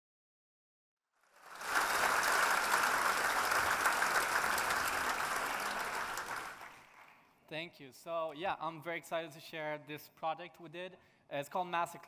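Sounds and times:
audience applauding: 1.2s - 7.3s.

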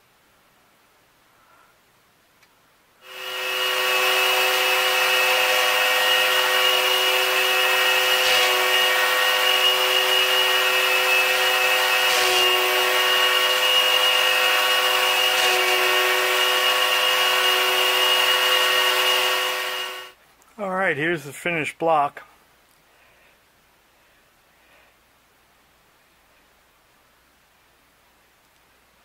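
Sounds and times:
machine tool motor whining: 3.0s - 20.1s.

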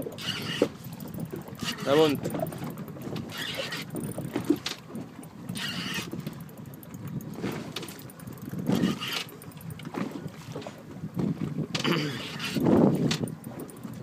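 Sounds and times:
fishing reel winding: 0.2s - 2.3s, 3.2s - 4.3s, 5.5s - 7.2s, 8.0s - 9.5s.

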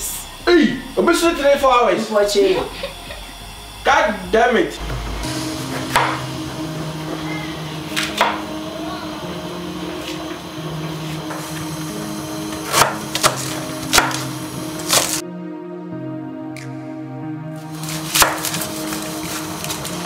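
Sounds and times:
quiet background music: 0.0s - 20.0s
knife chopping on wooden board: 5.9s - 6.2s, 12.6s - 14.2s, 18.1s - 18.6s.

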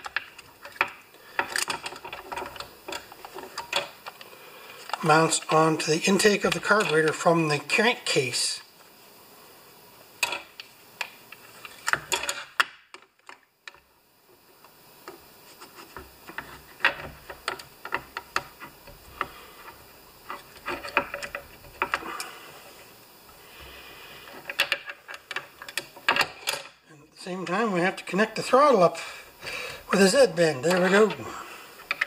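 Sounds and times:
small clicks and light knocks: 15.9s - 22.3s, 24.3s - 26.7s, 31.8s - 32.0s.

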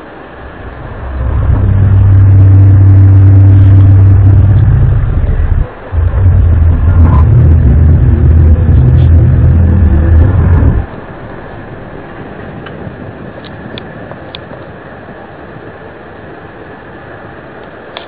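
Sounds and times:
low droning hum: 0.0s - 17.9s.

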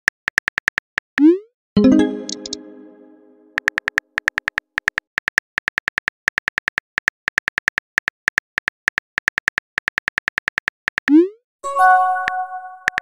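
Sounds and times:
phone keyboard typing clicks: 3.6s - 11.2s, 12.2s - 13.0s.

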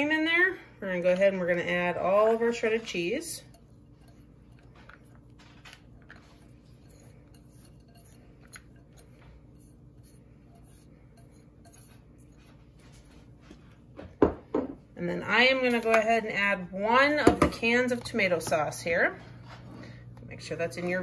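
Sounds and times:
steady low hum: 0.0s - 21.0s
cheese scraped from glass bowl: 2.6s - 13.6s.

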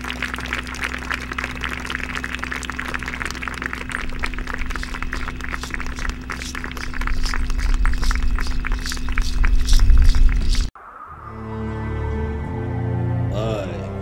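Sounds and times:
wind rumble on microphone: 0.0s - 10.7s
rapid rattling percussion clicks: 0.1s - 10.7s.

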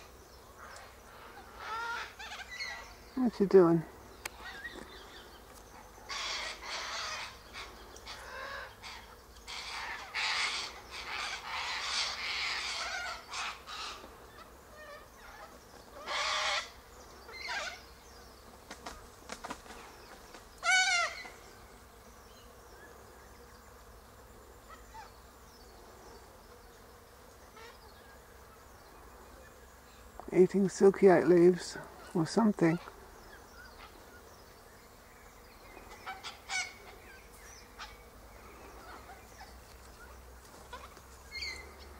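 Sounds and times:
cockatoos screeching: 6.1s - 14.0s, 14.8s - 16.8s, 20.6s - 21.3s.

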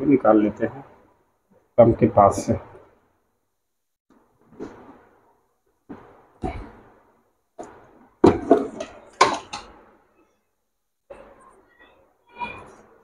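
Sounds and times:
plastic knocks and clatters: 7.6s - 9.9s.

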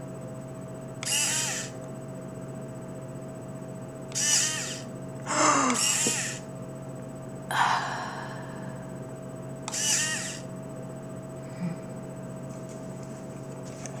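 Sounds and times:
small servo motors whirring: 1.0s - 1.8s, 4.1s - 6.5s, 9.7s - 10.5s.

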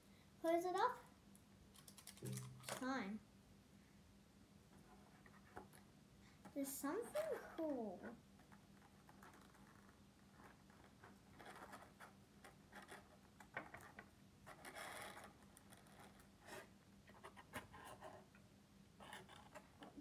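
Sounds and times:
plastic toys clicking: 1.8s - 2.8s.

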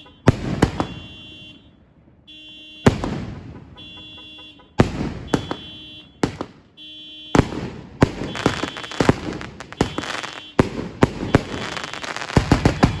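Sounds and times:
fireworks crackling: 0.0s - 1.3s, 4.7s - 13.0s
fireworks bangs: 0.0s - 1.6s, 2.5s - 13.0s.

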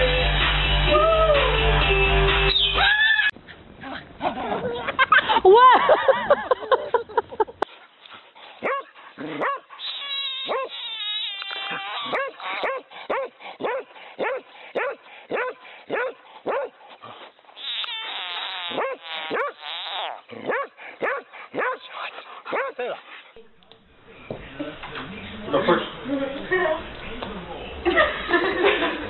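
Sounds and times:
dog barking: 8.6s - 9.7s, 10.4s - 10.7s, 12.0s - 16.8s, 18.7s - 19.6s, 20.4s - 21.9s, 22.5s - 22.8s
dog whining: 8.6s - 13.8s, 17.6s - 21.7s.

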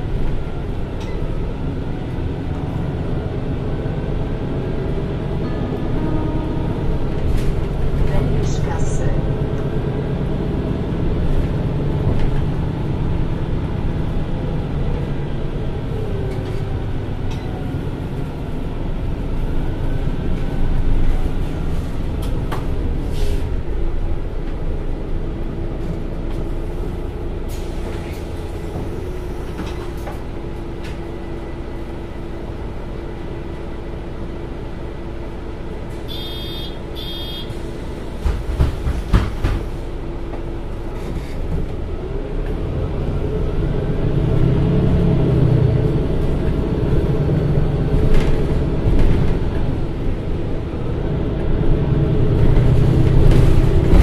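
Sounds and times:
bus engine whining and humming: 0.0s - 54.0s
short high beeps: 36.1s - 37.5s.

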